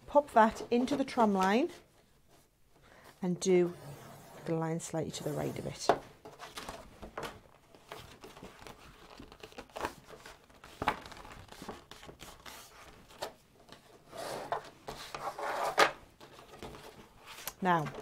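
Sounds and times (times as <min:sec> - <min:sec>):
cardstock rustling and crinkling: 0:05.1 - 0:18.0.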